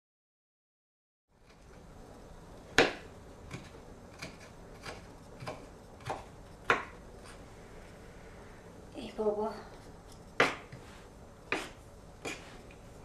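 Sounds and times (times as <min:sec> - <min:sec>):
knife chopping on wooden board: 0:02.8 - 0:07.0, 0:10.4 - 0:10.9, 0:11.5 - 0:12.7.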